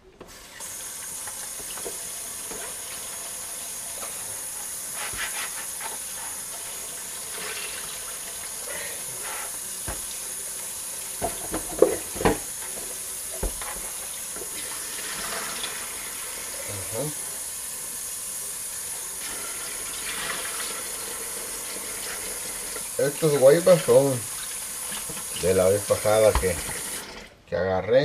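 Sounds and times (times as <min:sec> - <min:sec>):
tap water running into a bowl: 0:00.2 - 0:27.4.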